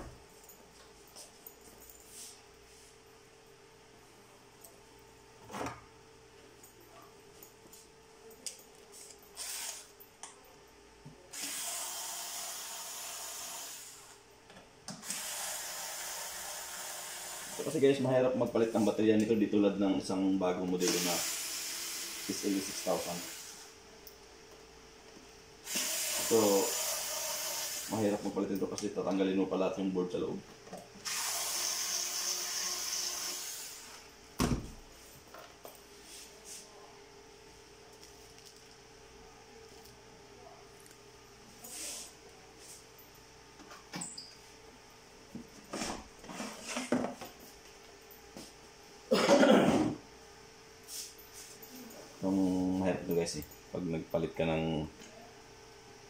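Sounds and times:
electric screwdriver whirring: 0:11.4 - 0:14.1, 0:15.0 - 0:17.6, 0:20.8 - 0:23.7, 0:25.7 - 0:28.0, 0:31.0 - 0:34.0.

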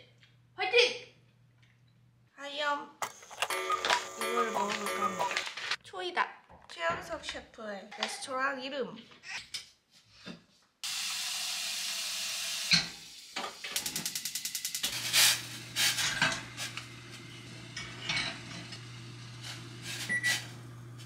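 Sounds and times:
gas burner rushing: 0:10.8 - 0:21.0
pots and pans clinking: 0:17.6 - 0:20.5.

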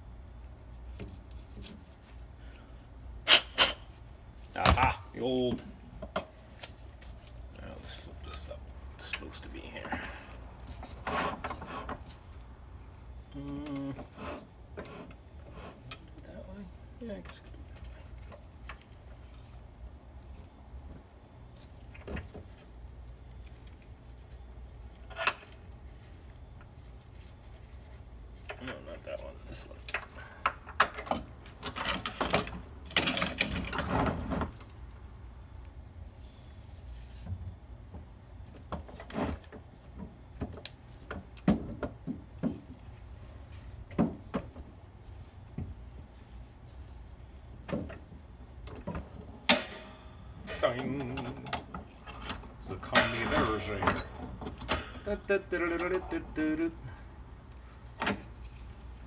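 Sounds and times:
low steady hum: 0:00.0 - 0:59.0
sharp metallic clack: 0:49.5 - 0:50.7, 0:52.3 - 0:55.0.

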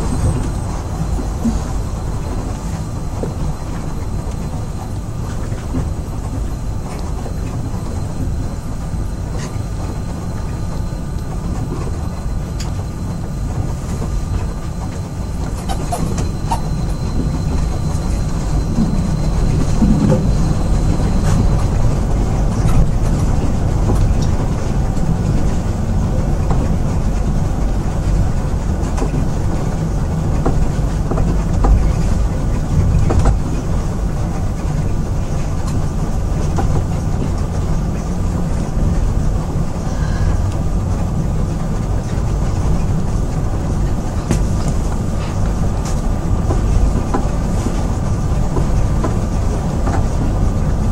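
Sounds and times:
faint high whine: 0:00.0 - 0:28.7
monorail car rumbling: 0:00.0 - 0:50.9.

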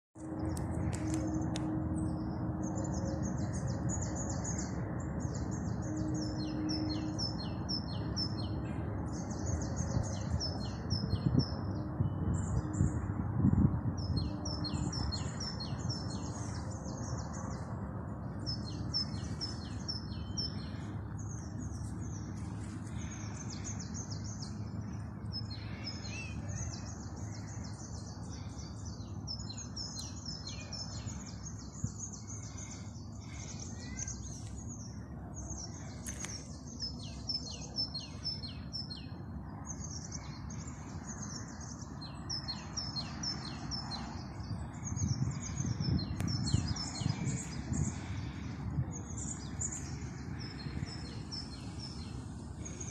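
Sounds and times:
low background rumble: 0:00.3 - 0:52.9
small birds chirping: 0:14.0 - 0:52.9.

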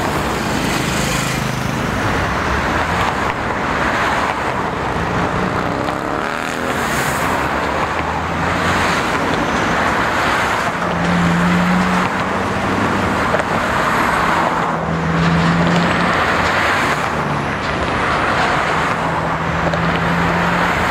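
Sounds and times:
tyre noise of passing vehicles: 0:00.0 - 0:20.9.

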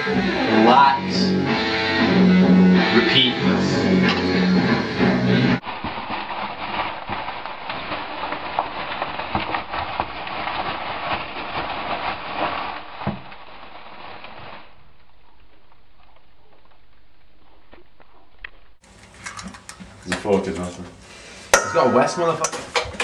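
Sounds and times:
plastic bag crumpling: 0:05.6 - 0:17.8.

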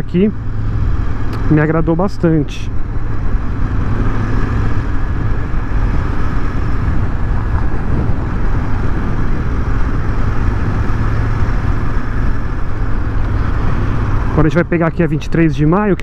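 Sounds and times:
motorcycle engine humming: 0:00.0 - 0:16.0
rush of wind and road noise: 0:00.0 - 0:16.0.

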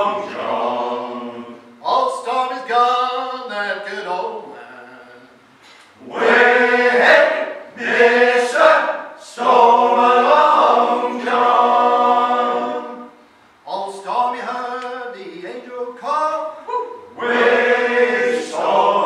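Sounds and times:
male choir singing in harmony: 0:00.0 - 0:01.8, 0:06.0 - 0:13.2, 0:17.1 - 0:19.0.

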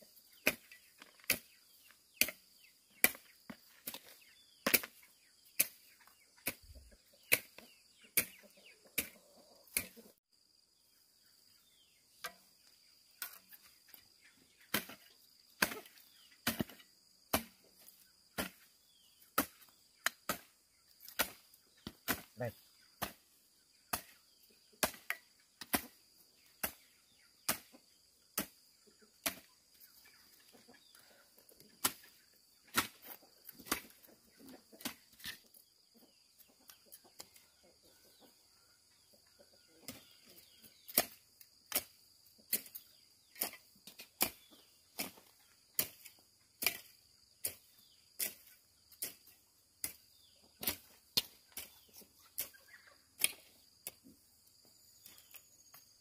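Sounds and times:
sharp chopping strikes: 0:15.6 - 0:17.6.

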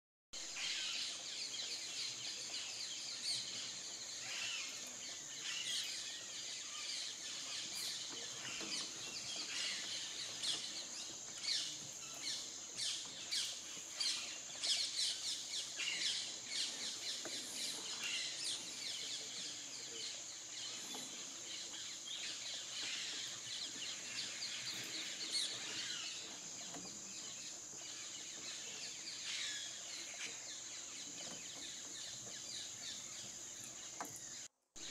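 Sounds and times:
small birds chirping: 0:00.4 - 0:34.9.

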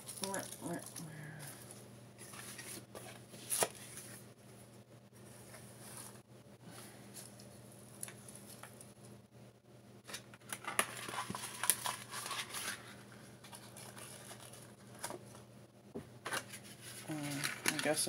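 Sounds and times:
cardboard tearing and crinkling: 0:02.2 - 0:04.2, 0:10.1 - 0:15.2.

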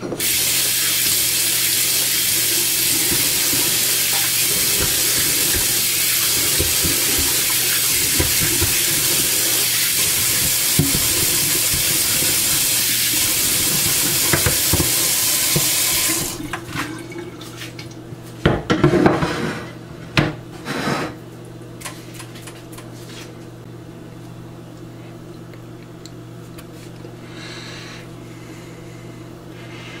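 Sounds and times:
tap water running into a sink: 0:00.2 - 0:17.5
faint steady hum: 0:23.4 - 0:30.0.

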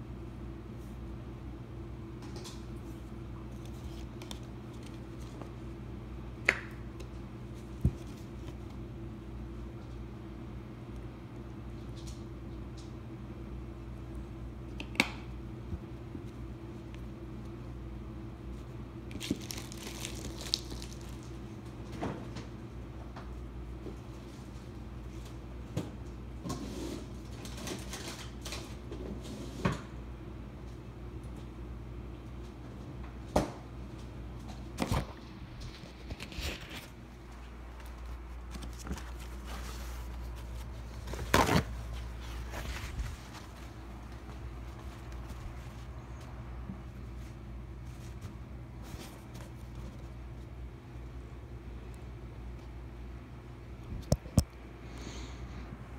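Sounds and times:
steady low hum: 0:00.0 - 0:27.7, 0:28.3 - 0:55.9
rustling: 0:35.7 - 0:50.5.

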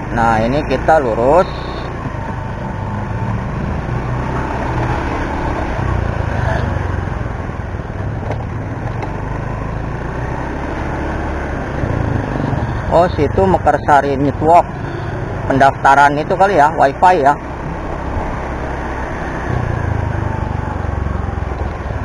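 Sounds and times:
road noise: 0:00.0 - 0:22.0
scooter engine drone: 0:00.0 - 0:22.0.

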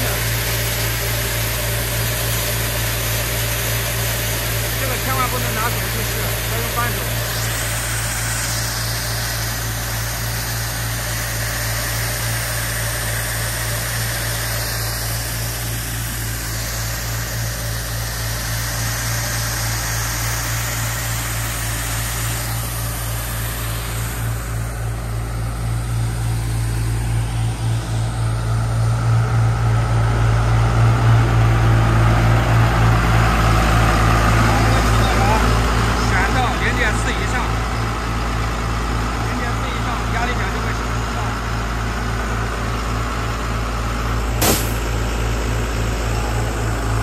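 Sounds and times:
water jets hissing: 0:00.0 - 0:25.5
engine hum: 0:00.0 - 0:47.0.

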